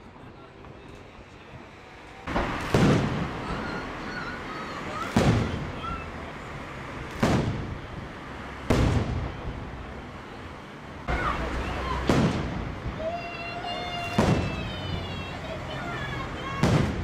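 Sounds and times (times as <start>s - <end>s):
firework bangs echoing: 2.3s - 6.1s, 7.0s - 9.8s, 11.1s - 15.3s, 15.9s - 17.0s.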